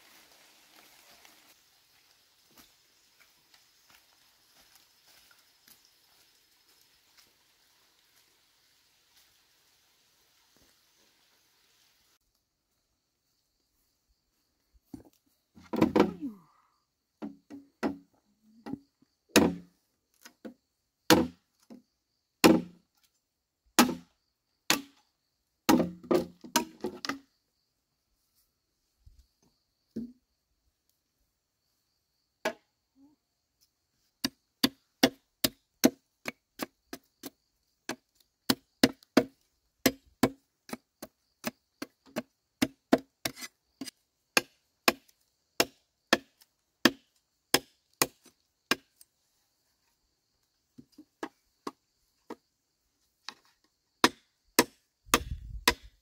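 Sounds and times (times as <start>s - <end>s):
machete chopping bamboo: 19.3s - 19.7s, 21.1s - 21.4s, 22.4s - 22.8s, 23.8s - 24.1s, 24.7s - 25.0s, 25.7s - 27.2s, 34.2s - 37.3s, 37.9s - 49.0s, 54.0s - 56.0s.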